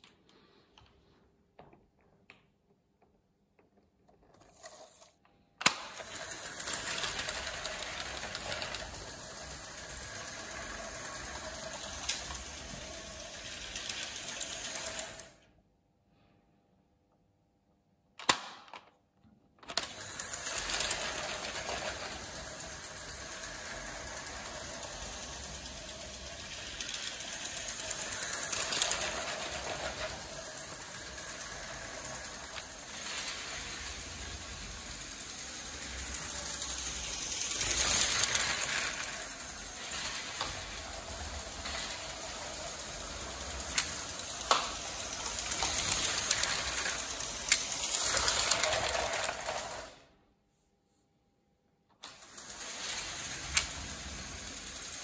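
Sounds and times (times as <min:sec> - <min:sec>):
toy train motor whirring: 0:04.2 - 0:15.5, 0:19.6 - 0:50.1, 0:52.0 - 0:55.0
train wheels clattering: 0:19.9 - 0:49.7.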